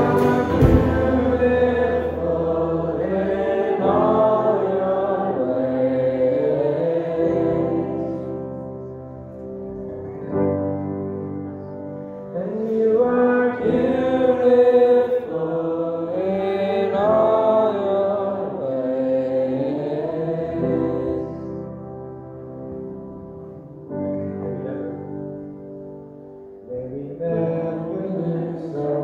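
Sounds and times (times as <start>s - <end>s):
acoustic guitar: 0.0s - 2.6s
piano: 0.0s - 29.0s.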